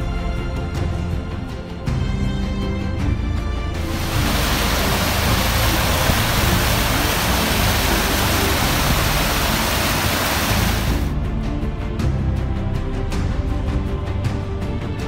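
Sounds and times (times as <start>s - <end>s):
creek water rushing over rocks: 3.8s - 11.1s.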